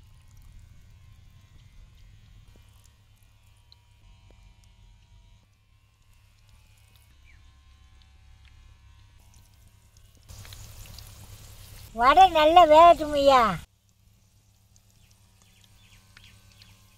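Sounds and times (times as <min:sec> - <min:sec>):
batter sizzling in hot oil: 0:05.6 - 0:16.9.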